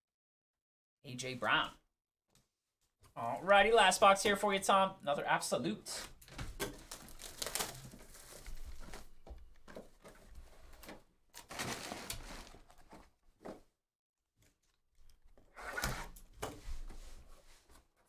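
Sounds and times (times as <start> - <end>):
plastic wrap crinkling and tearing: 6.6 - 9.7, 10.6 - 13.0.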